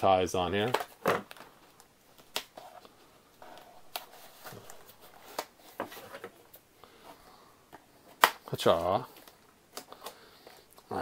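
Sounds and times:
cardboard rustling: 2.2 - 7.1.

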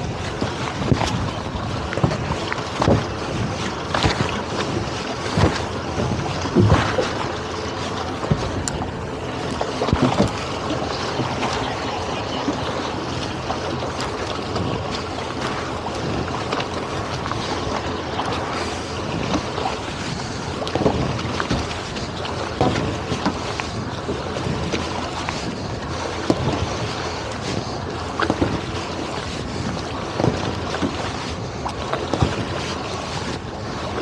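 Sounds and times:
water lapping at boat hull: 0.0 - 34.0
wind buffeting microphone: 0.0 - 34.0
knocks and thuds of tow line: 0.3 - 11.6, 20.6 - 23.5.

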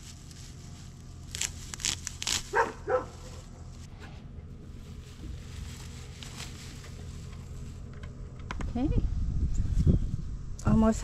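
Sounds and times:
dog barking: 2.5 - 3.4.

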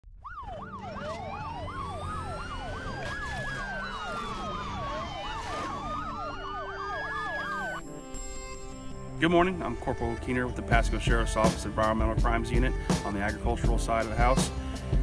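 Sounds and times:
police siren wail: 0.0 - 7.8
police siren yelp: 0.1 - 7.8.

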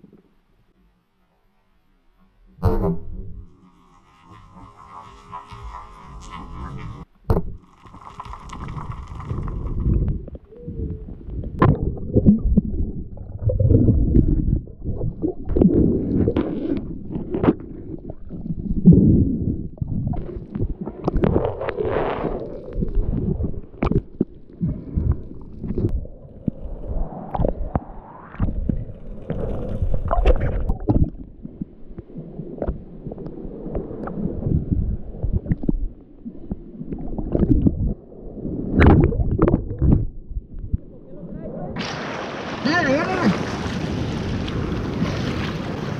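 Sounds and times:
underwater rumbling and gurgling: 2.1 - 41.8
sharp knocks and splashes: 7.2 - 9.9.

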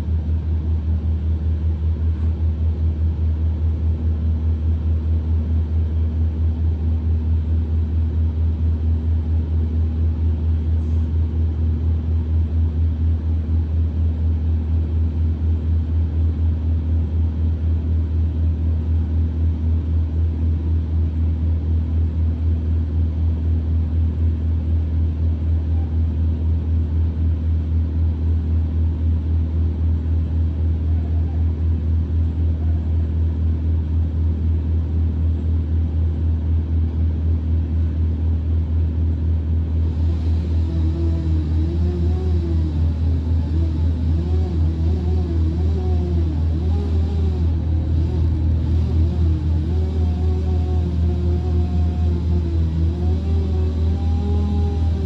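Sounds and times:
wood chipper engine idling: 39.5 - 55.0.

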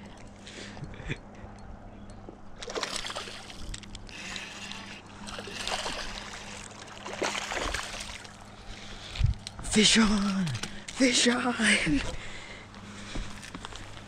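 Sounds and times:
fish splashing in water: 2.6 - 8.4.

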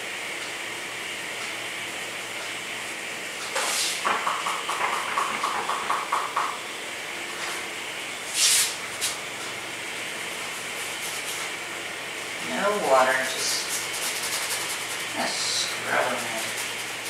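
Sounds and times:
steady hiss: 8.2 - 9.2
paintbrush scrubbing on palette: 10.5 - 11.6, 12.6 - 17.0.

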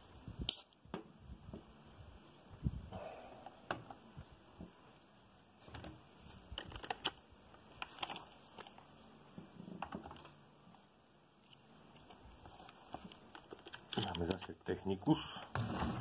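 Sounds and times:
small tools clicking and tapping: 11.4 - 14.6.

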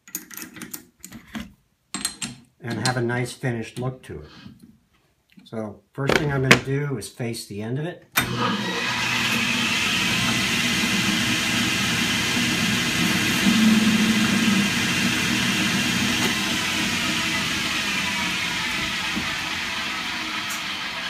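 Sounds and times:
metal lathe running: 8.3 - 21.0.

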